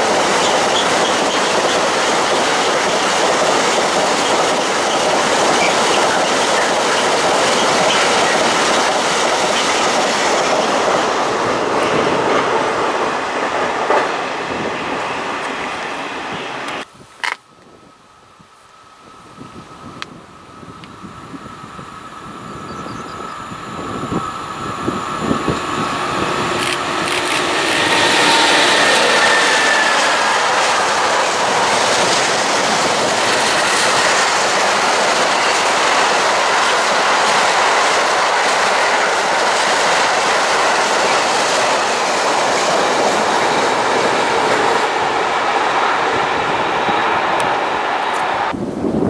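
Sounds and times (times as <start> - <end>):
train wheels clattering on rails: 0.0 - 12.6, 25.2 - 45.0
electric locomotive approaching: 0.0 - 16.9, 18.1 - 49.0.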